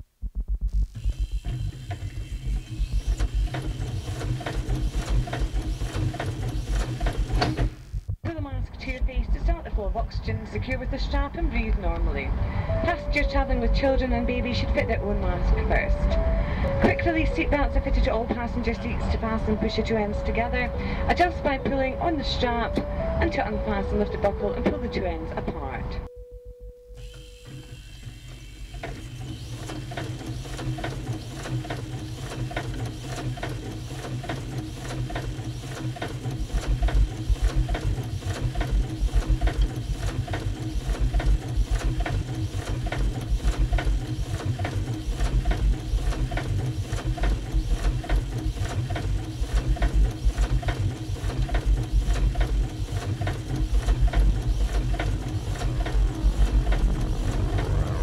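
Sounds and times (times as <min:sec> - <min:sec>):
deep pulsing low beat: 0:00.0 - 0:27.0, 0:34.4 - 0:58.0
experimental music: 0:00.1 - 0:04.3, 0:07.8 - 0:26.1, 0:51.6 - 0:58.0
printing press clatter: 0:03.1 - 0:07.8, 0:28.8 - 0:58.0.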